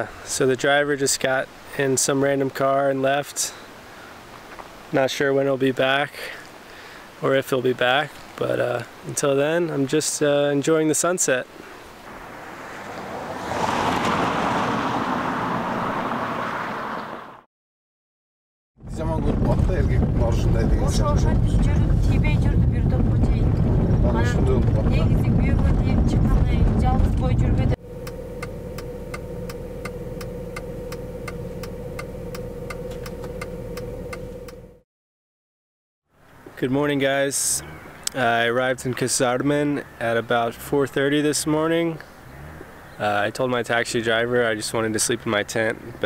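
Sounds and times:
road vehicle passing: 12.0s - 17.5s, 19.8s - 34.8s, 37.4s - 38.2s, 40.3s - 44.0s
evenly spaced ticking: 28.0s - 34.7s.

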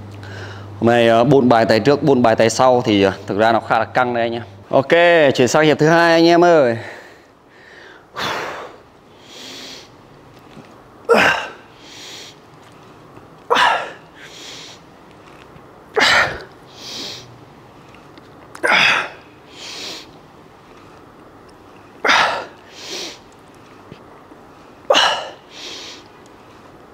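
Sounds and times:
soft in-breath: 0.2s - 0.8s, 6.8s - 10.0s, 14.2s - 14.9s, 16.7s - 18.0s, 22.0s - 26.8s
man exhaling forcefully: 7.6s - 9.9s, 16.0s - 17.3s, 18.6s - 20.1s, 22.0s - 23.2s, 24.9s - 26.0s.

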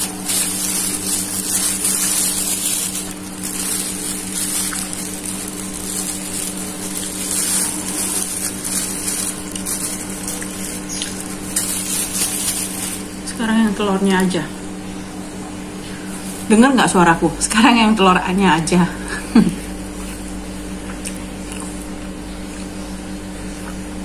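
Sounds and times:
chewing: 0.0s - 13.0s, 20.0s - 22.7s
plastic bag rustling: 0.0s - 13.8s
two-tone hum with hiss: 0.0s - 24.0s.

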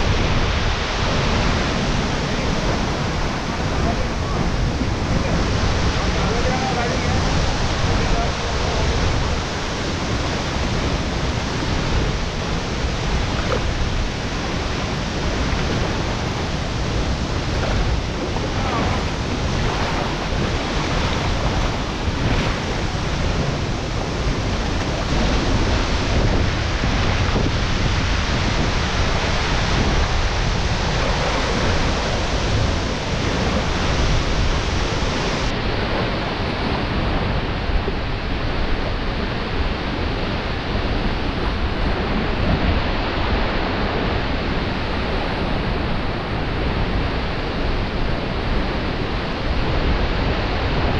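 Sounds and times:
stream pouring over rocks: 0.0s - 35.5s.

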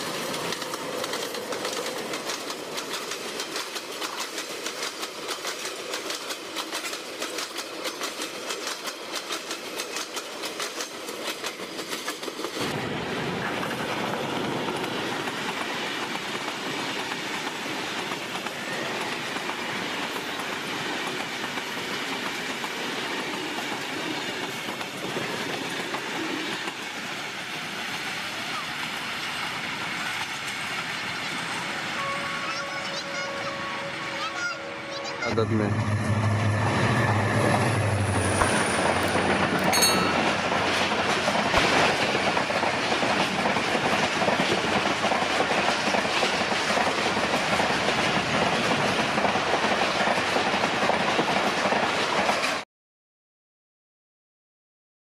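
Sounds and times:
train wheels clattering over rail joints: 0.0s - 27.0s, 37.4s - 52.6s
passing train coaches rushing: 0.0s - 52.6s.

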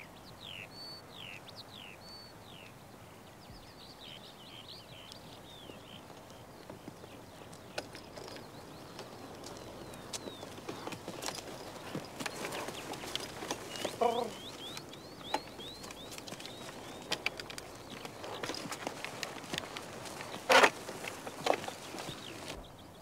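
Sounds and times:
birds chirping: 0.0s - 23.0s
light rustle: 5.1s - 22.7s
hooves and harness knocking: 5.5s - 22.6s.

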